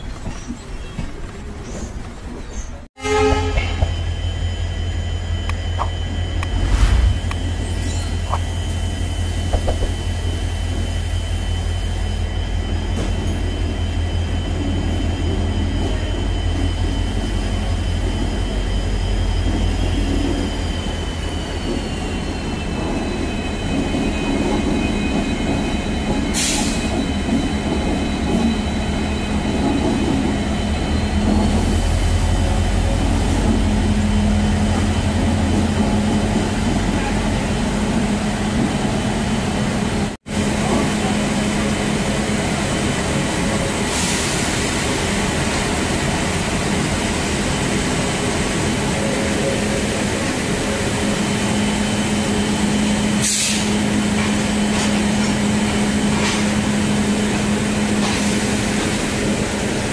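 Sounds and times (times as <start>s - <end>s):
high whining tones: 4.4s - 9.0s.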